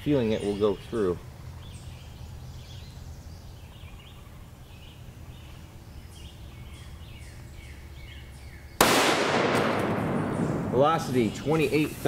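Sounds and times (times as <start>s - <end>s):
birds chirping: 0.0s - 12.0s
rifle shot with echo: 8.8s - 11.4s.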